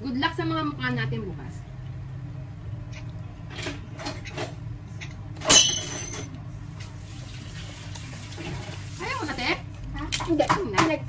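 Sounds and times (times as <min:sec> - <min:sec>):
steady low hum: 0:00.0 - 0:11.0
sharp clink on a dish: 0:05.4 - 0:06.3.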